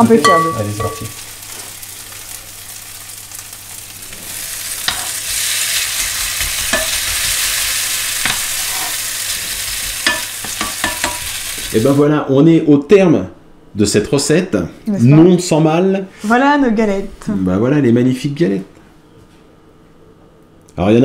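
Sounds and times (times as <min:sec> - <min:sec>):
food sizzling in oil in a pan: 0:00.0 - 0:12.0.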